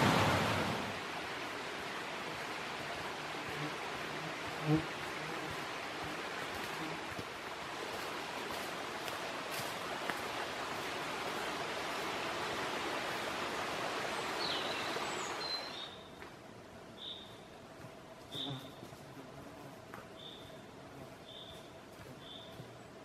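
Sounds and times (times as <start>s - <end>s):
mountain stream rushing: 0.0s - 16.1s.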